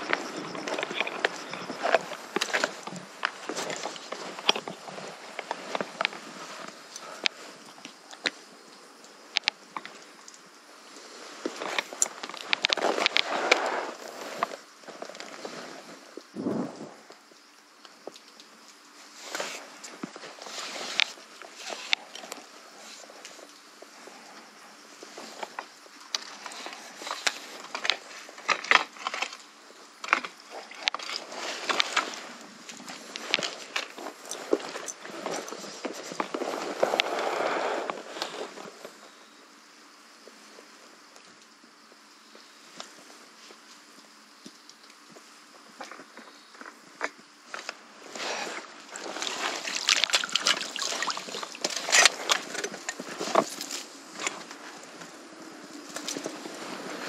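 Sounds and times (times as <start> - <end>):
fish splashing in water: 49.2 - 51.8.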